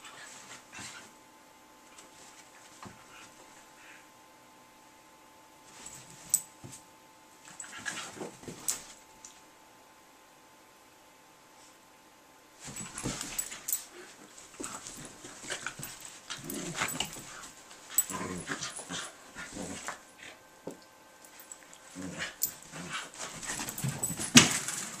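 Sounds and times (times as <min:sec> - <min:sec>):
dogs growling and yipping: 0:14.6 - 0:20.4, 0:21.8 - 0:24.9.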